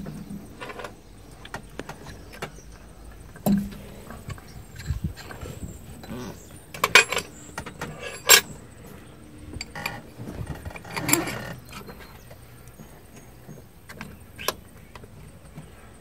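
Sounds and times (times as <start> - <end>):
handling and rustling: 0.0 - 16.0
hand tools clinking on metal: 3.5 - 12.9.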